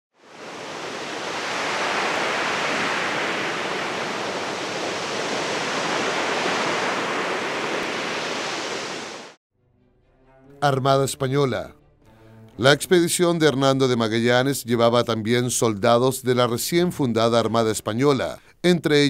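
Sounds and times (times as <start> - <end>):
steady rushing noise: 0.2 - 9.4.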